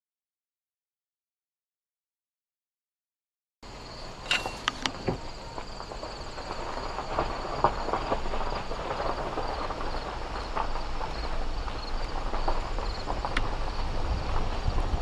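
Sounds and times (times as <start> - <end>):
insects chorus: 3.6 - 15.0
crunching knocks: 3.9 - 14.8
low rumble: 10.0 - 15.0.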